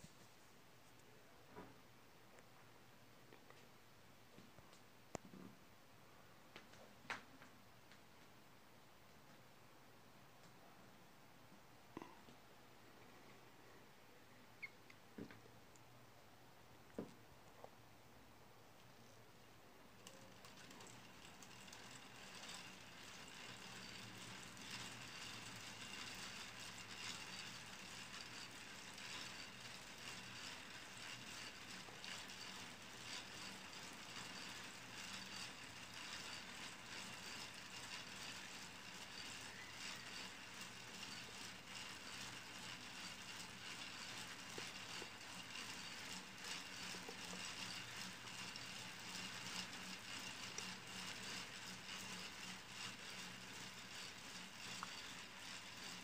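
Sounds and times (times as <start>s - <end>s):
plastic gears clicking and rattling: 20.0s - 56.0s.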